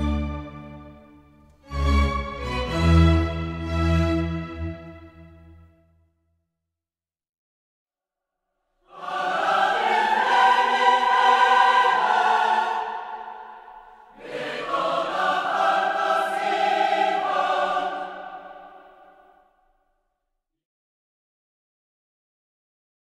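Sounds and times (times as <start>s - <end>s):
held choral chords: 8.8s - 19.5s.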